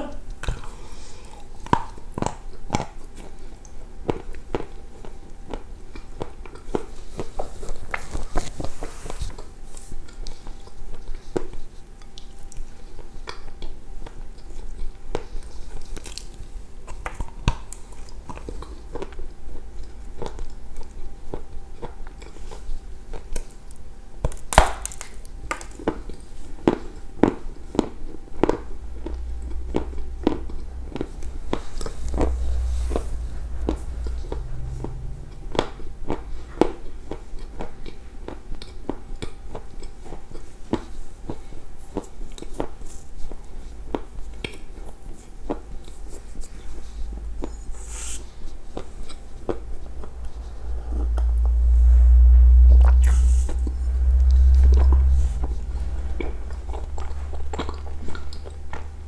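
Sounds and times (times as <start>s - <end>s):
chewing with mouth clicks: 0.3s - 8.4s, 9.4s - 23.8s, 35.3s - 50.1s
low rumble: 28.0s - 37.2s, 46.2s - 59.0s.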